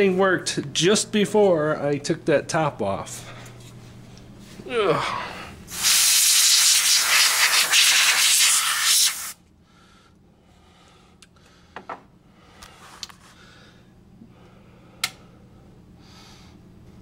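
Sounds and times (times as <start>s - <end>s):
loud steady hiss: 5.7s - 9.4s.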